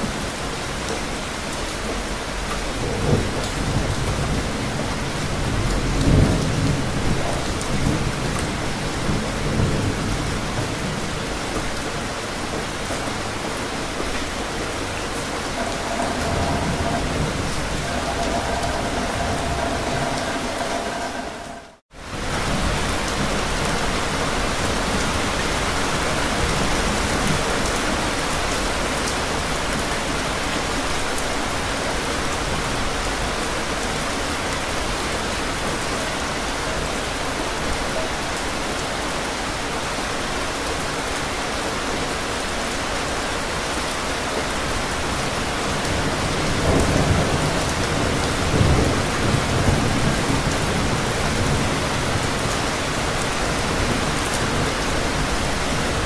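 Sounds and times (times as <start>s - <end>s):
steady rain on hard surfaces: 0.0s - 56.0s
thunder rumble: 15.1s - 23.3s.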